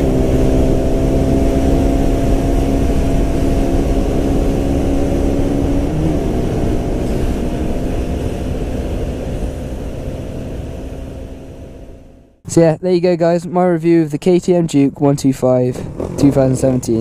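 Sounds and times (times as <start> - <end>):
motorcycle engine running: 0.0 - 12.3, 15.7 - 17.0.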